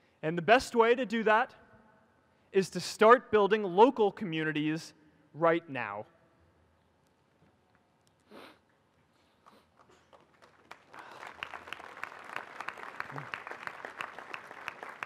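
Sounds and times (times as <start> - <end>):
audience applause: 9.9 - 15.0.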